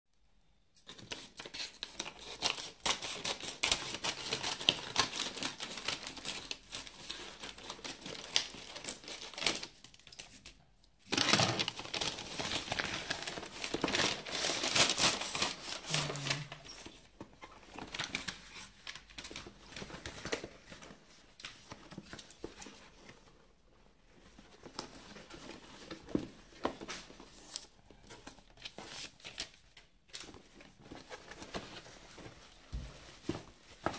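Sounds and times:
paper mailer crinkling and tearing: 0:11.1 - 0:17.1.

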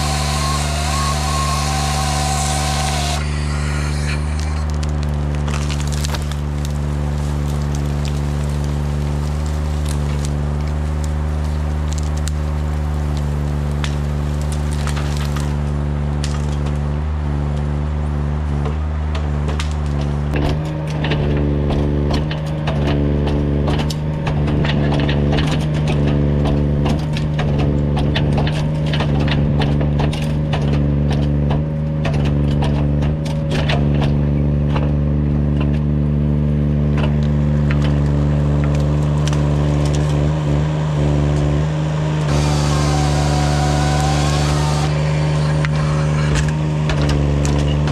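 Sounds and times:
machine engine running: 0:00.0 - 0:17.6, 0:36.5 - 0:47.9
branches cracking and snapping: 0:00.0 - 0:47.9.

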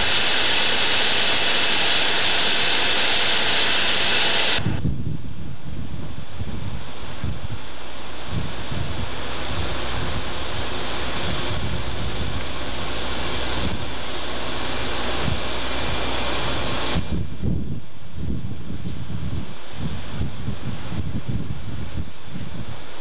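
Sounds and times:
thin high whine: 0:00.0 - 0:23.0
wind buffeting microphone: 0:04.6 - 0:23.0.

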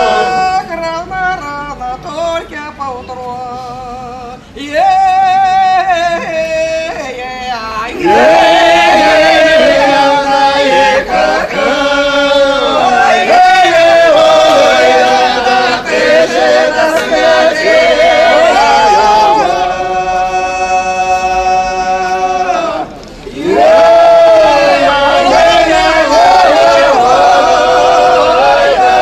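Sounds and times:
choir singing in harmony: 0:00.0 - 0:00.8, 0:07.9 - 0:29.0.

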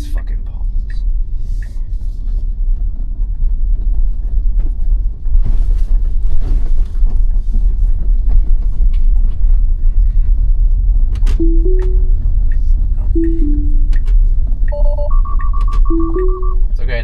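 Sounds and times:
road and tyre rumble: 0:00.0 - 0:11.4.

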